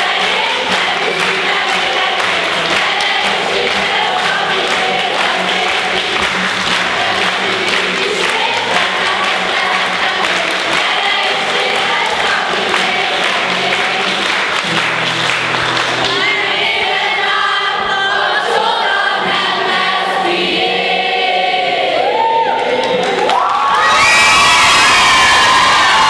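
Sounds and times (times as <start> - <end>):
group singing: 0.0 - 14.9, 15.9 - 23.3
hand clapping: 0.0 - 16.4
guitar accompaniment: 0.0 - 23.8.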